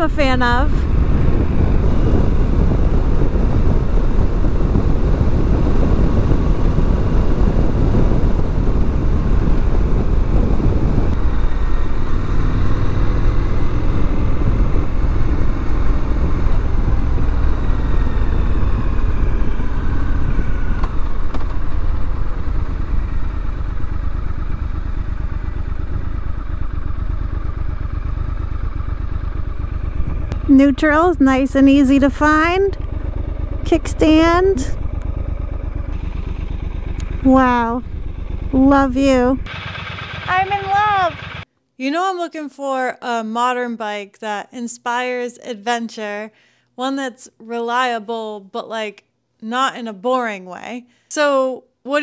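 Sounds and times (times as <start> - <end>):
wind rush on microphone: 0.0 - 28.1
motorcycle engine running: 0.0 - 41.5.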